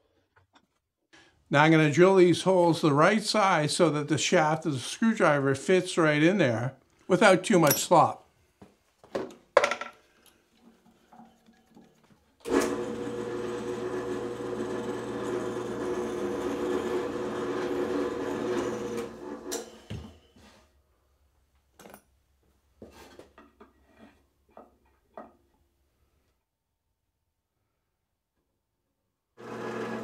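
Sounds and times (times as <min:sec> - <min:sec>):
drill press running: 0:12.4 - 0:19.8, 0:29.4 - 0:30.0.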